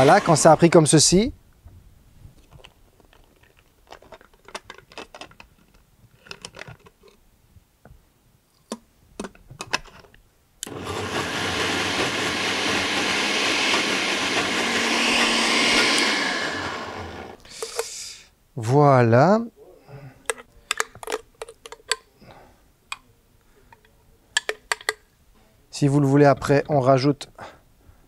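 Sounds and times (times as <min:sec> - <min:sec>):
blender motor running: 0:00.0 - 0:00.6, 0:10.6 - 0:17.4.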